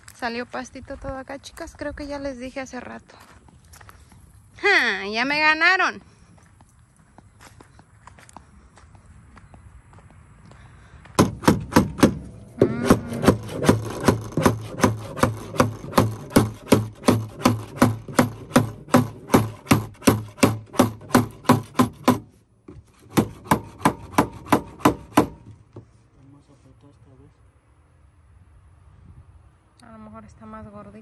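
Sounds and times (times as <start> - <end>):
hand tool working wood: 11.2 - 25.9.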